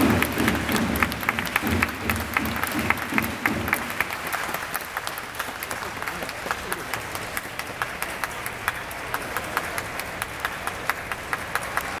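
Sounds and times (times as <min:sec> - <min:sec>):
sharp single claps: 0:00.0 - 0:05.6
crowd applause: 0:00.0 - 0:12.0.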